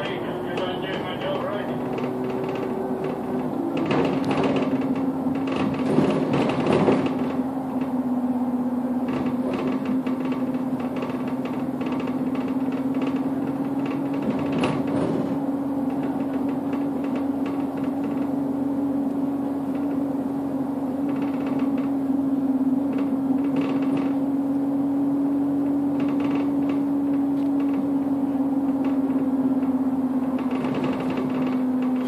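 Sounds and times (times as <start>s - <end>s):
bus interior hum: 0.0s - 32.0s
cabin rattles and knocks: 1.9s - 7.4s, 9.1s - 18.3s, 30.3s - 32.0s.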